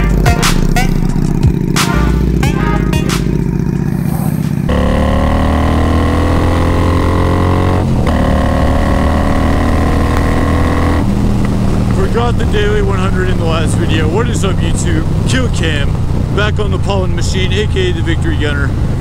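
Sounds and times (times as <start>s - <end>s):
loud motorcycle engine: 0.0s - 19.0s.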